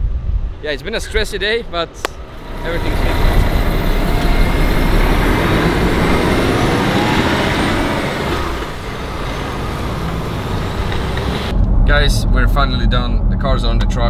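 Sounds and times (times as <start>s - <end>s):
heavy truck engine pulling away: 2.2s - 11.5s
tyres rolling: 2.2s - 11.5s.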